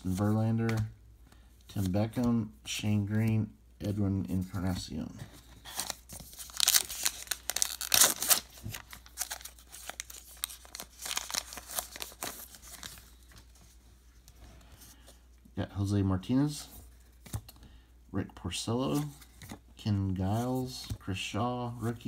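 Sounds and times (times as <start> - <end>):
wrapper tearing and crinkling: 5.8 - 13.0.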